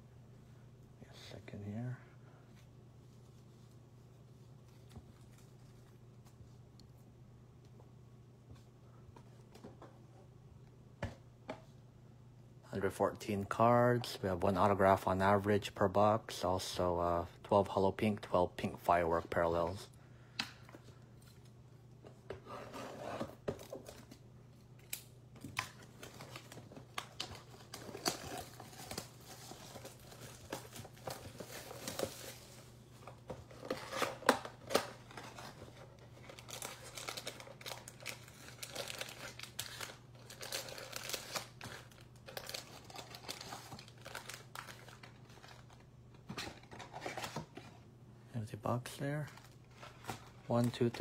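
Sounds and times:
cellophane tearing: 0:25.6 - 0:32.4, 0:36.2 - 0:45.8.

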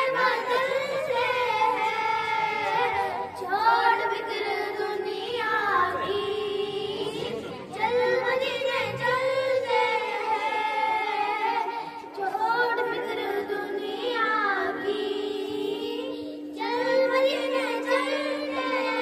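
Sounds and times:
girls singing together: 0:00.0 - 0:19.0
steady low tone: 0:00.0 - 0:19.0.

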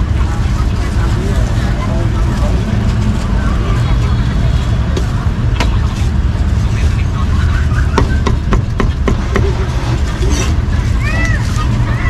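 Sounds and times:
low rumble of street traffic: 0:00.0 - 0:12.0.

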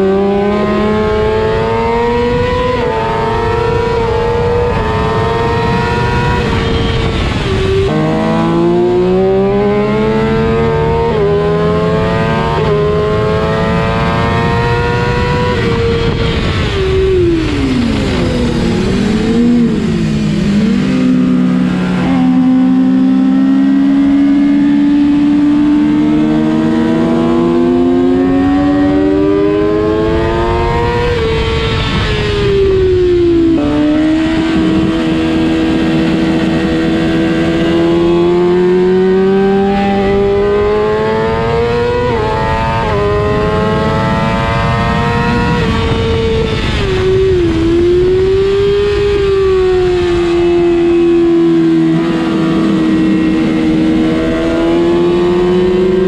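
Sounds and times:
sport bike engine revving: 0:00.0 - 0:56.0.

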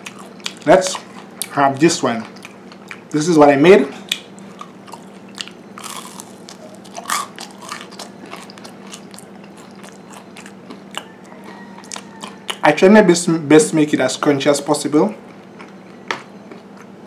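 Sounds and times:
crunchy chewing: 0:00.0 - 0:03.2, 0:04.0 - 0:12.9, 0:15.1 - 0:17.0
faint low hum: 0:00.0 - 0:17.0.

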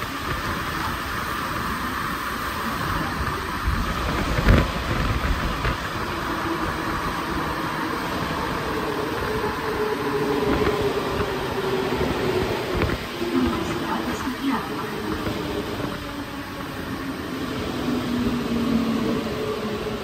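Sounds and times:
train rolling noise: 0:00.0 - 0:20.0.

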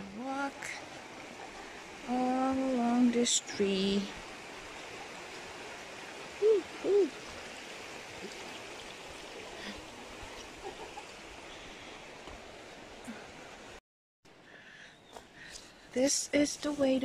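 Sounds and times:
hooting calls: 0:06.2 - 0:07.4.

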